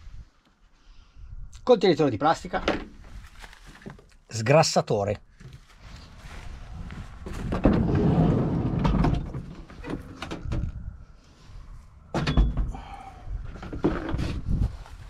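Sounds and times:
van sliding door rolling open: 0:07.4 - 0:10.7.

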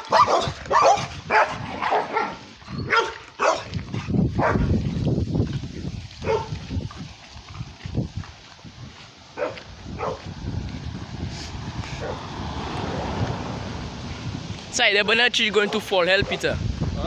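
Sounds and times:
dog barking: 0:00.0 - 0:03.8, 0:04.4 - 0:04.7, 0:06.2 - 0:06.6, 0:09.4 - 0:10.3.

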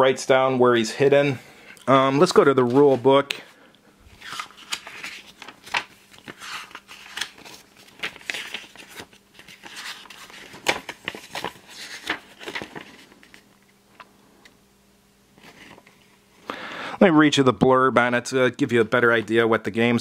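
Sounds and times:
paper pages rustling: 0:02.2 - 0:03.3, 0:04.1 - 0:14.1, 0:15.4 - 0:16.1.

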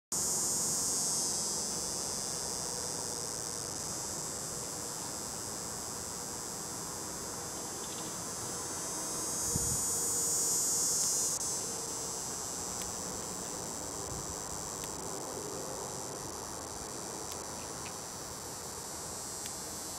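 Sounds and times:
cicada buzzing: 0:00.1 - 0:19.9.

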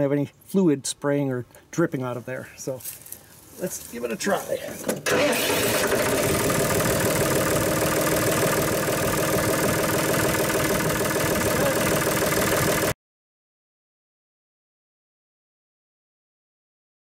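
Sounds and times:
tractor diesel engine idling: 0:05.0 - 0:13.0.

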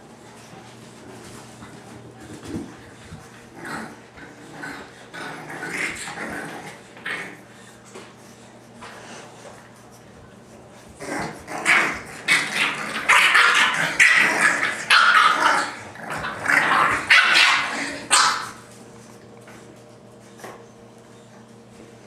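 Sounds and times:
puppies barking and growling: 0:02.3 - 0:07.6, 0:10.8 - 0:19.3.

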